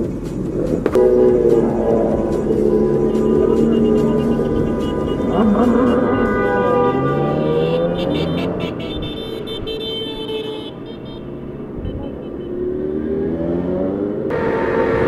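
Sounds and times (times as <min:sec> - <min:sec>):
motorcycles revving past: 0:00.7 - 0:08.9, 0:12.3 - 0:15.0.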